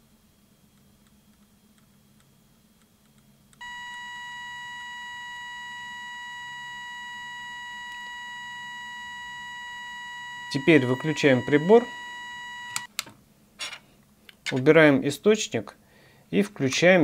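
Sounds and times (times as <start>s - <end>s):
steady electronic alarm tone: 3.6s - 12.9s.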